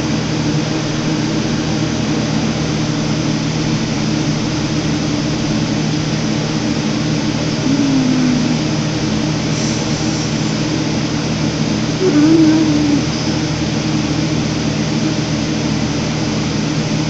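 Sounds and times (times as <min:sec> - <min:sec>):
low mechanical hum with hiss: 0:00.0 - 0:17.0.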